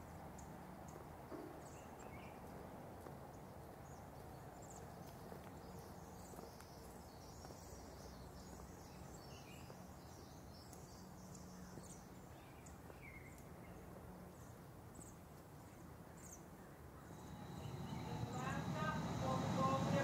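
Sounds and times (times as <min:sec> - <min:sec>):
streetcar hum: 0:17.1 - 0:20.0.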